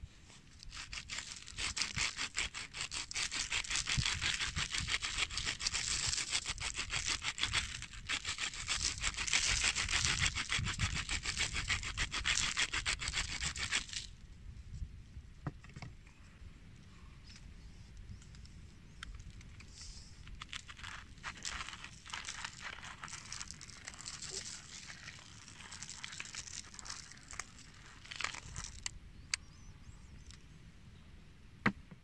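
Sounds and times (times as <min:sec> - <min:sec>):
salt mill grinding: 0:00.8 - 0:13.9, 0:20.4 - 0:28.9.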